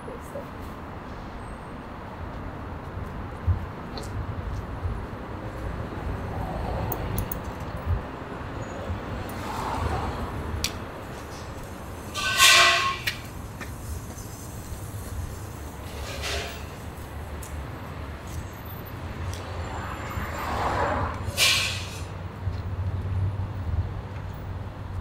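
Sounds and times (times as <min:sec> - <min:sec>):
short loud horn toot: 0:12.2 - 0:13.1.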